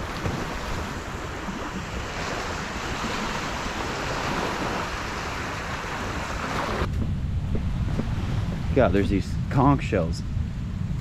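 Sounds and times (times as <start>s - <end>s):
small waves breaking on shore: 0.0s - 6.9s
wind rumbling on microphone: 0.0s - 11.0s.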